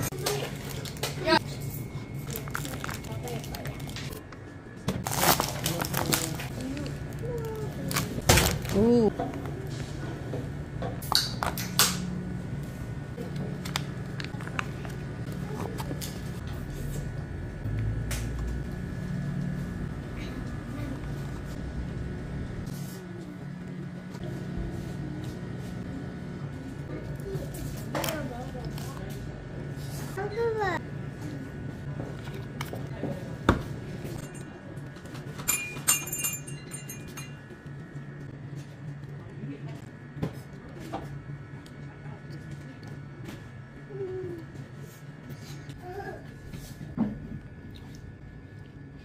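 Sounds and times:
ringing clinks: 35.4 - 37.4.

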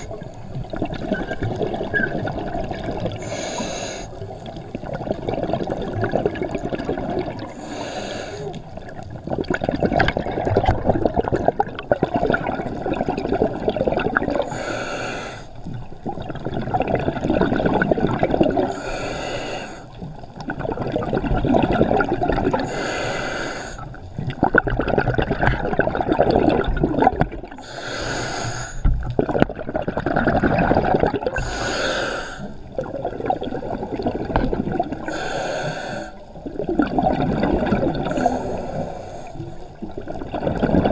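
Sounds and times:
exhaled air bubbling: 0.0 - 40.9
regulator inhale hiss: 3.2 - 4.2, 7.5 - 8.6, 14.5 - 15.6, 18.7 - 20.0, 22.6 - 24.0, 27.6 - 28.9, 31.4 - 32.6, 35.1 - 36.3, 38.1 - 39.8.

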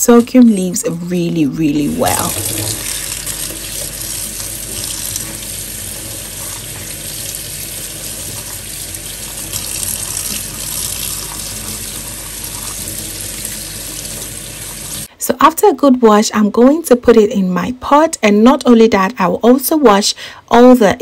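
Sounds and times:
tap water splashing into sink: 2.0 - 15.1.

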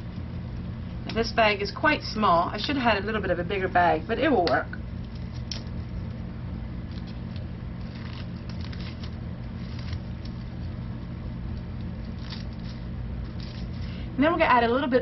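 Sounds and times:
steady low hum: 0.0 - 15.0
paper tea bag rustling: 11.9 - 14.0.

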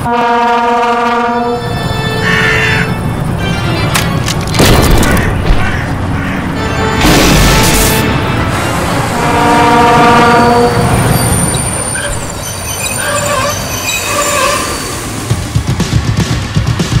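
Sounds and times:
locomotive horn chord: 0.0 - 4.0, 6.3 - 11.5
train wheels squealing: 10.7 - 15.3.

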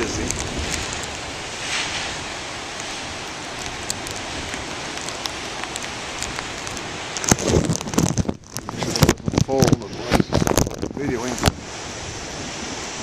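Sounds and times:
surf breaking on rocky shore: 0.0 - 13.0
microphone handling bumps: 7.2 - 11.7.

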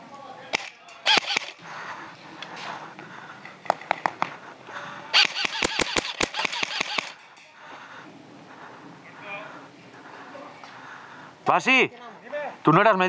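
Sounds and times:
airsoft gunfire: 0.5 - 1.6, 5.1 - 7.2.

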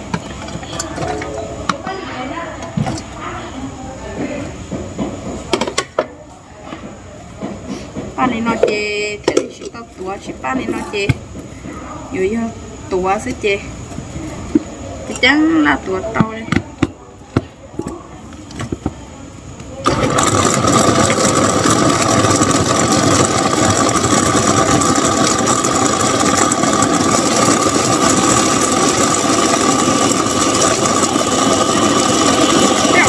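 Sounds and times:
motor running with whine: 19.8 - 33.0.

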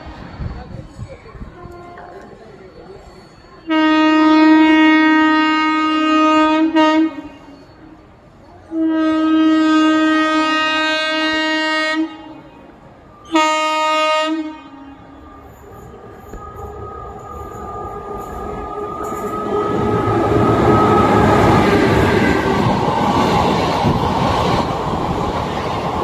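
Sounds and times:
locomotive horn blasts: 3.6 - 8.0, 8.7 - 12.6, 13.2 - 15.2.

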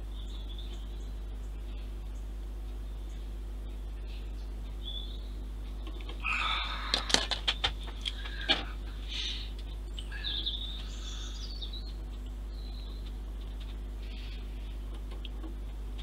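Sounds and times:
bird chirps: 0.0 - 3.4, 4.0 - 6.9, 9.1 - 13.2
low steady hum: 0.0 - 16.0.

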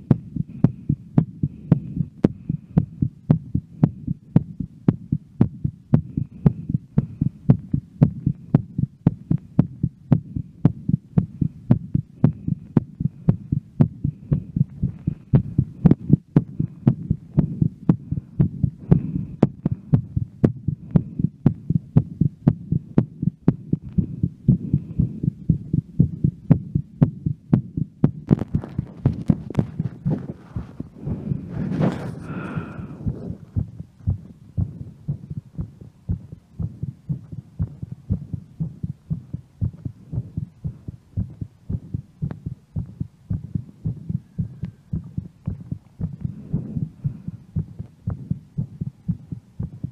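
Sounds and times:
thudding heartbeat: 0.0 - 49.9
breathing: 0.5 - 3.1, 6.0 - 7.5, 12.2 - 16.0, 16.6 - 20.2, 20.8 - 21.4, 23.8 - 25.3, 30.2 - 33.6, 46.1 - 47.9.

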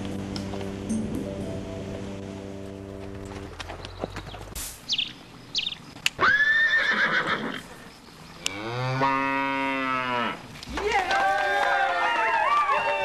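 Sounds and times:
horse whinnying: 6.2 - 7.7
cow mooing: 8.4 - 10.4.

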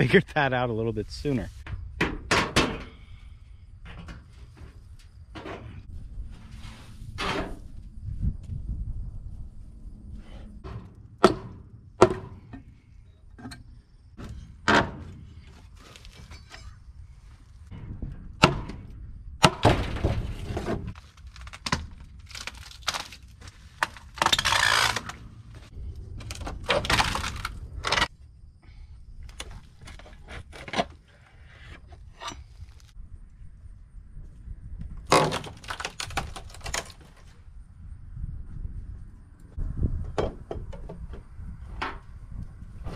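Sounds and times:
wood knocking and cracking: 19.4 - 25.2, 35.1 - 37.3.

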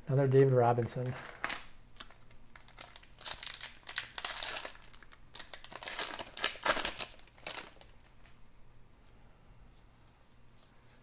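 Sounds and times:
plastic wrapper crinkling: 0.9 - 8.4.

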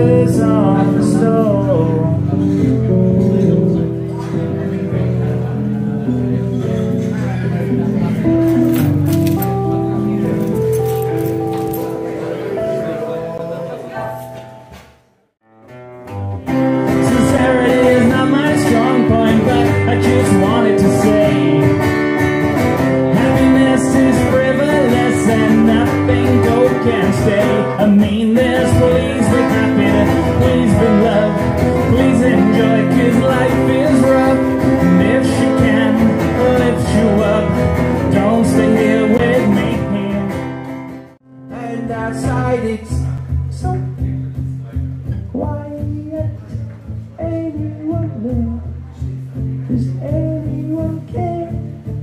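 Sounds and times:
man singing: 0.0 - 5.4, 16.7 - 22.0, 22.9 - 40.7, 41.4 - 52.0
acoustic guitar: 0.0 - 52.0.

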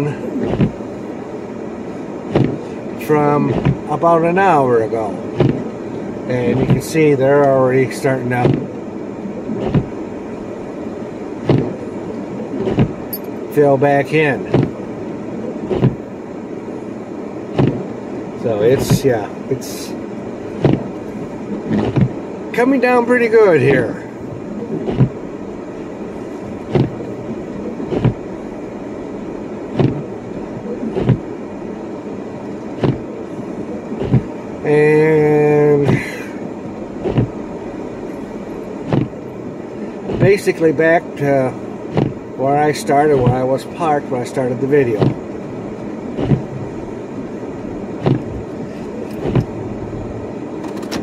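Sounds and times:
car road and engine hum: 0.0 - 51.0
short thumps: 0.4 - 0.8, 2.3 - 2.7, 3.4 - 3.9, 5.3 - 5.8, 6.5 - 6.9, 8.4 - 8.8, 9.6 - 10.0, 11.4 - 11.8, 12.6 - 13.3, 14.4 - 14.8, 15.7 - 16.0, 17.5 - 17.9, 18.7 - 19.1, 20.6 - 22.2, 24.7 - 25.2, 26.7 - 27.1, 27.9 - 28.3, 29.8 - 30.1, 30.9 - 31.3, 32.8 - 33.1, 34.0 - 34.3, 35.8 - 36.2, 37.0 - 37.4, 38.8 - 39.2, 40.1 - 40.4, 41.9 - 42.2, 43.1 - 43.4, 44.9 - 45.3, 46.2 - 46.7, 48.0 - 48.5, 49.1 - 49.6.

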